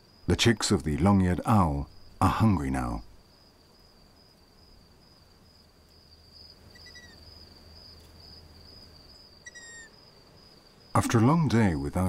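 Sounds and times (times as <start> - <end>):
faint high insect trill: 0.0 - 12.0
owl chicks squeaky begging calls: 6.7 - 7.2, 9.4 - 10.0.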